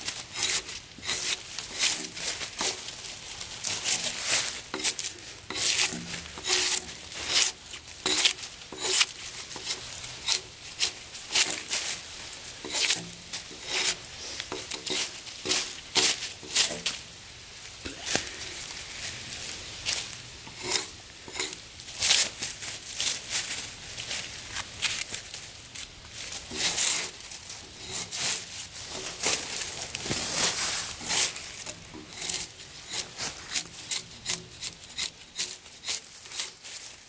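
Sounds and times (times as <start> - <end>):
drawknife scraping bark off log: 0.0 - 2.9, 3.7 - 11.8, 12.6 - 16.8, 20.5 - 21.6, 26.5 - 36.9.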